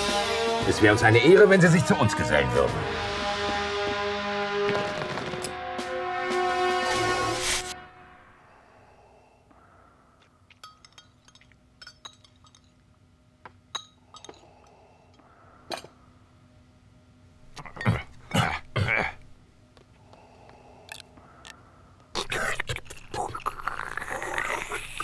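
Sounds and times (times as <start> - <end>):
faint steady hum: 7.8 - 25.0
cutlery and glasses clinking: 10.6 - 12.8.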